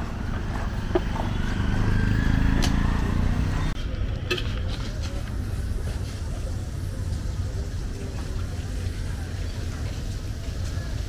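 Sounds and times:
vehicle engine running: 0.0s - 4.2s
low traffic rumble: 0.0s - 11.0s.

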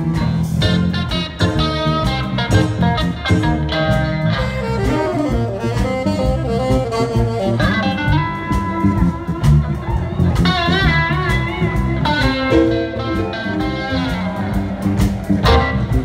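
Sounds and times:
blues band playing: 0.0s - 16.0s
electric guitar: 0.0s - 16.0s
saxophone: 0.9s - 14.7s.

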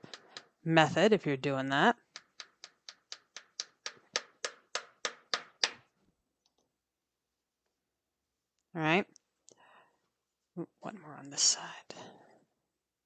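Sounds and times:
hammer tapping tack nail: 2.2s - 5.8s.

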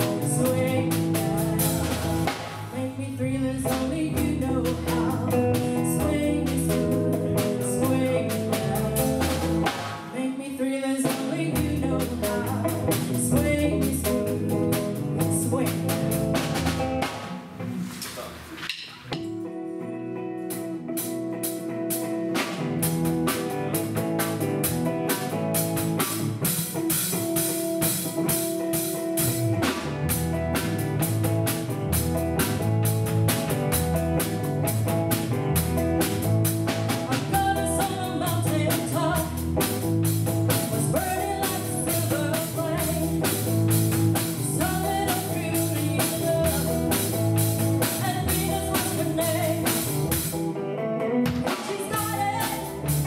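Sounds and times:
woman singing: 0.0s - 16.4s, 36.9s - 39.8s, 40.5s - 43.5s, 44.2s - 47.2s, 47.8s - 49.9s, 51.4s - 53.0s
live rock band playing: 0.0s - 53.0s.

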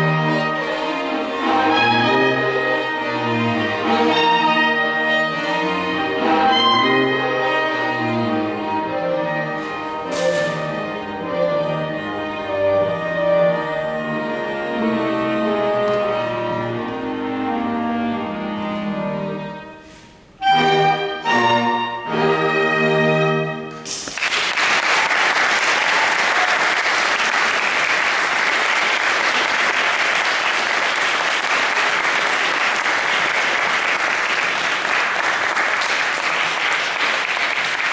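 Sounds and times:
string and clarinet quartet playing: 0.0s - 23.8s
loud short chords: 9.5s - 11.5s
audience applause: 23.9s - 37.9s.

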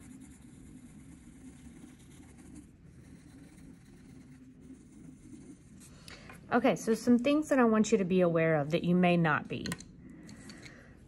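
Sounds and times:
pencil scratching on paper: 0.0s - 6.0s.

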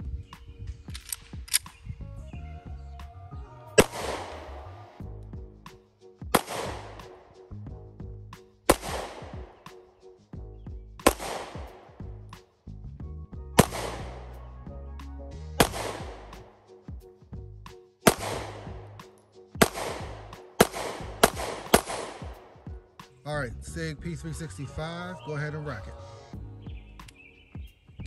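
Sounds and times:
pistol shots: 3.8s - 4.5s, 6.3s - 7.2s, 8.7s - 9.7s, 11.0s - 12.0s, 13.6s - 14.3s, 15.6s - 16.4s, 18.0s - 18.9s, 19.6s - 22.6s.

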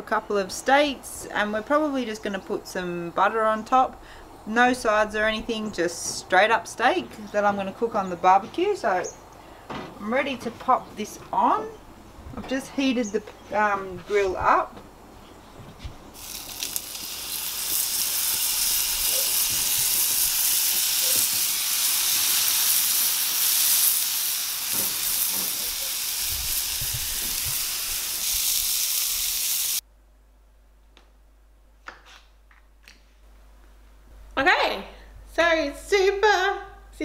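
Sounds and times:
steaks sizzling on hotplate: 16.2s - 29.8s.

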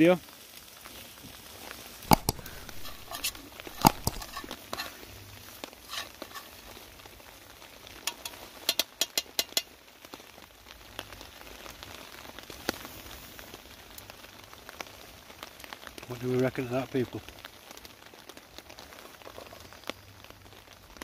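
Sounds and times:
curry sizzling in a pan: 0.0s - 21.0s
sharp taps: 2.1s - 4.5s.

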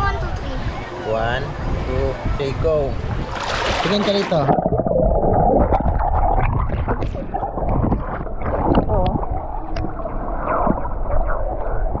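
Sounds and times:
muffled water sloshing: 3.0s - 12.0s.

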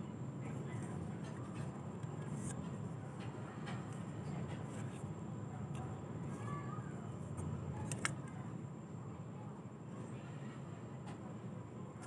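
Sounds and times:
low background hum: 0.0s - 12.0s
plastic parts clicking and scraping: 7.4s - 8.3s.

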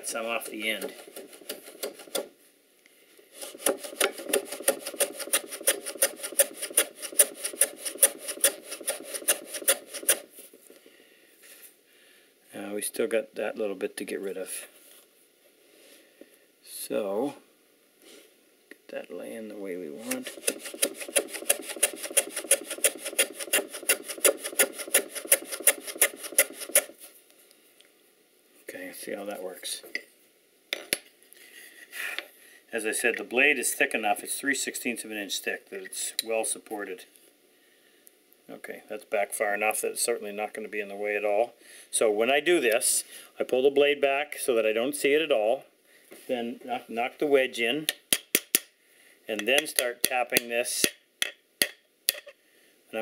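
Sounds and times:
hand plane shaving end grain: 0.6s - 2.2s, 3.3s - 10.3s, 20.1s - 27.0s.

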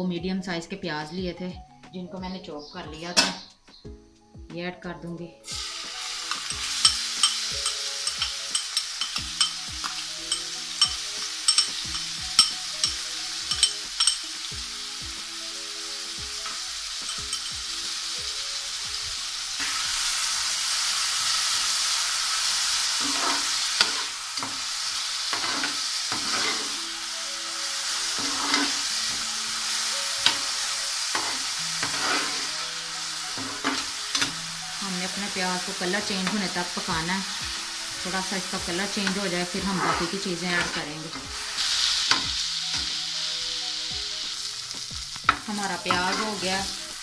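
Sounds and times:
onions sizzling in a pan: 5.4s - 47.0s
spoon scraping a pan: 5.5s - 14.4s, 16.4s - 17.6s, 22.4s - 26.9s, 27.8s - 34.4s, 35.1s - 43.0s, 44.7s - 47.0s.

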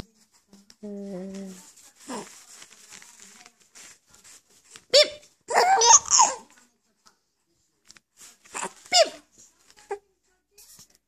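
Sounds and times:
baby laughing: 5.0s - 6.5s.

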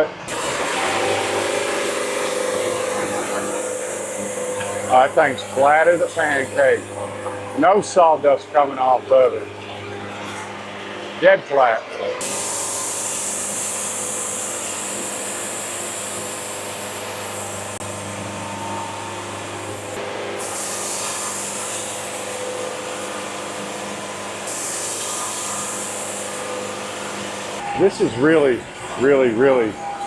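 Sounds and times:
band saw machine hum: 0.0s - 30.0s
high hiss of sawing: 0.3s - 6.9s, 12.2s - 17.6s, 20.4s - 23.5s, 24.4s - 27.6s.

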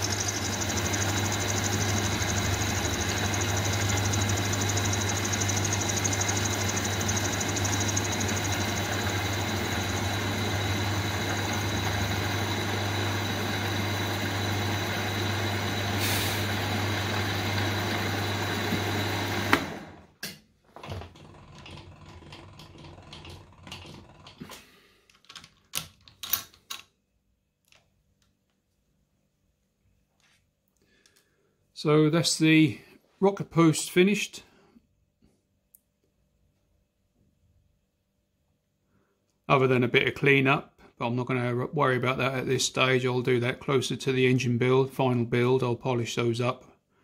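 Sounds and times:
milling machine humming: 0.0s - 20.0s.

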